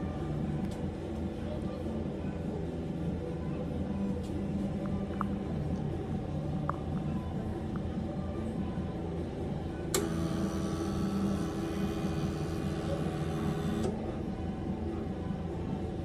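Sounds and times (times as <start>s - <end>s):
constant low hum: 0.0s - 16.0s
machine running steady tone: 5.9s - 16.0s.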